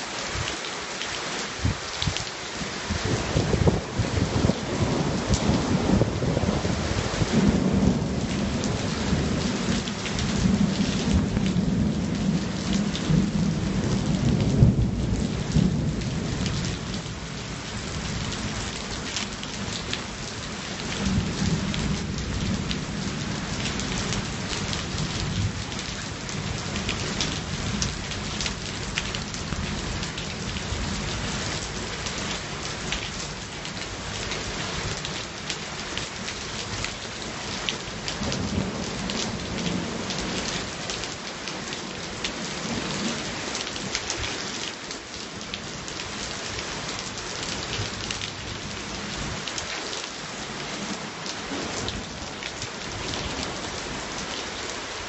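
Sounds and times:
heavy rain: 0:00.0 - 0:55.0
thunder rumbling: 0:02.9 - 0:17.1.

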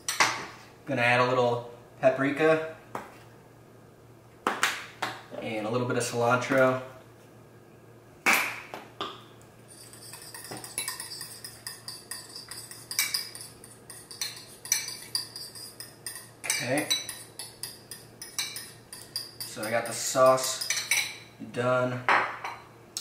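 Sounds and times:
utensil stirring in a bowl: 0:09.6 - 0:21.3.

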